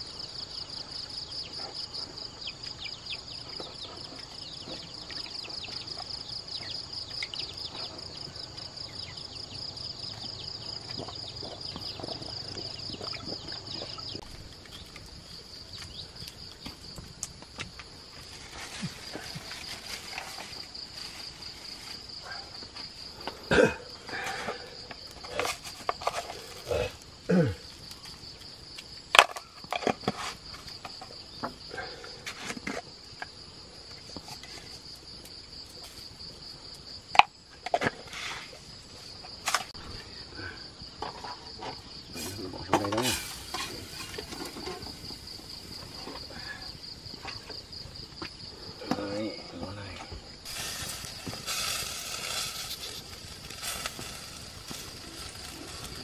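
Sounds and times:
insects chirring: 0.0 - 56.0.

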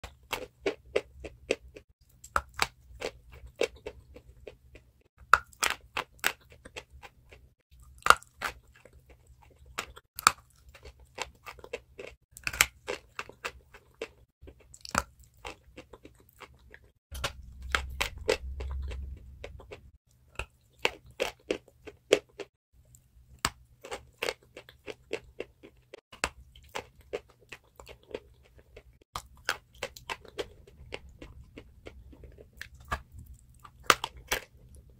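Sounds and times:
low rumble: 17.2 - 20.0
chalk crunching being chewed: 23.8 - 34.9.

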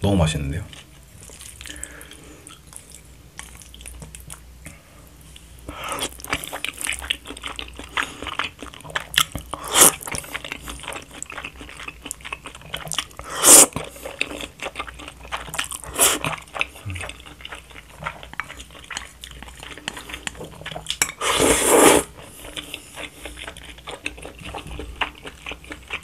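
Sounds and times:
wet chewing of noodles: 0.7 - 26.0
loud noodle slurps: 9.6 - 10.1, 13.2 - 13.8, 15.9 - 16.3, 21.2 - 22.1.

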